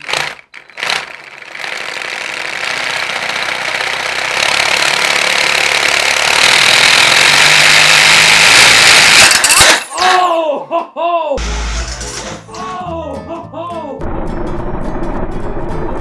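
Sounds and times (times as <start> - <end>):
model engine whirring clatter: 0.0 - 9.8.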